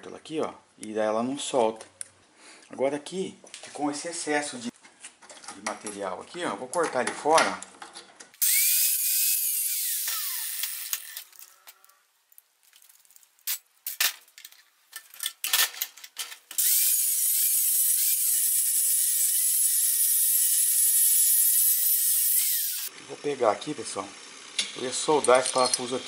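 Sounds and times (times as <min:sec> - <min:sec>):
angle grinder cutting steel: 0:08.4 - 0:11.3, 0:16.6 - 0:22.9.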